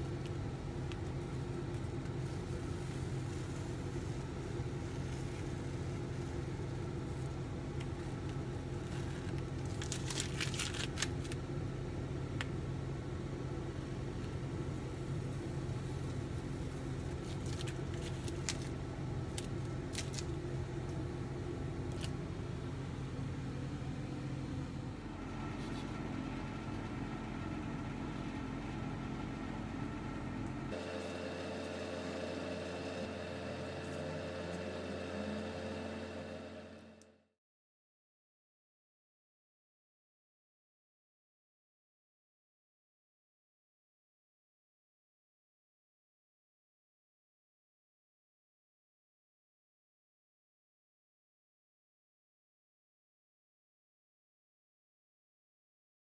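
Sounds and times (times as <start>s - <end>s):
low machine hum: 0.0s - 37.3s.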